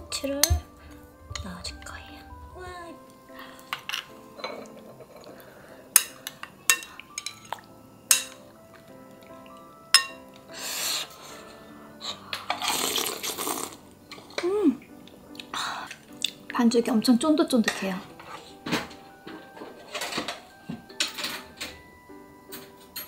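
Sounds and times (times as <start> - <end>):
soft background music: 0.0 - 23.0
metal spoon clinking ceramic bowl: 3.7 - 5.3, 6.0 - 8.5, 9.9 - 10.3.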